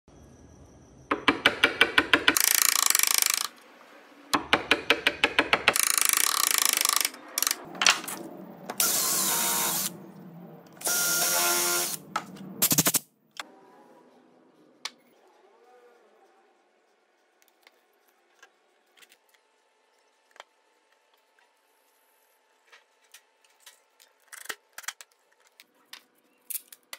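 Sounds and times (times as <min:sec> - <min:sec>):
drill clutch clicks: 0:02.0 - 0:03.5, 0:05.7 - 0:07.6
cordless drill whirring into wood: 0:08.8 - 0:09.9, 0:10.8 - 0:12.0.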